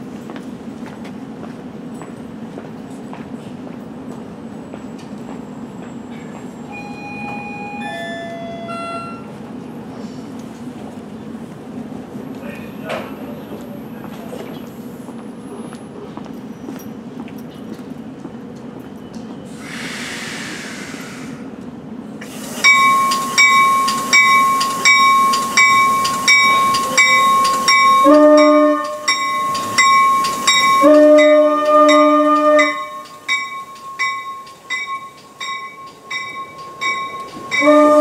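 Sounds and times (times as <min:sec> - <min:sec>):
bell dinging steadily: 0:06.7 - 0:09.3, 0:22.6 - 0:38.0
brief hiss: 0:19.5 - 0:21.4
train horn blasts: 0:26.6 - 0:29.2, 0:30.6 - 0:34.3, 0:36.1 - 0:38.0.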